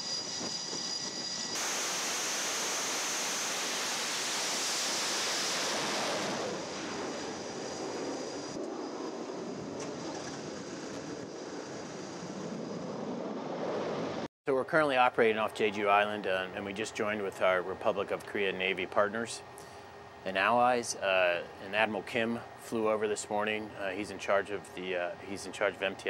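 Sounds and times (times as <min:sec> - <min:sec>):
rush of jet and wind noise: 0:00.0 - 0:14.3
jet turbine whine: 0:00.0 - 0:26.0.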